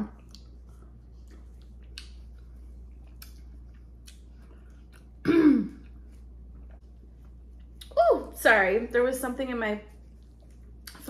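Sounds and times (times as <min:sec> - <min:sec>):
woman coughing: 0:05.2 - 0:05.8.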